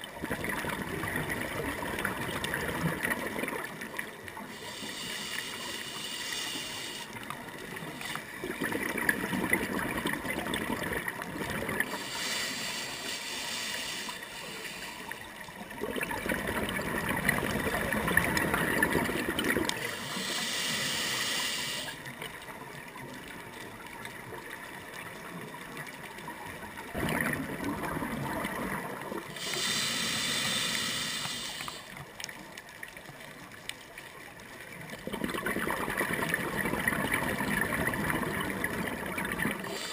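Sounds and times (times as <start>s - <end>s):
exhale bubbling gurgle: 0.0s - 5.6s, 6.6s - 14.4s, 15.2s - 32.1s, 34.2s - 39.9s
regulator inhale hiss: 4.4s - 8.2s, 11.9s - 15.4s, 19.8s - 22.1s, 29.3s - 32.0s, 39.6s - 39.9s.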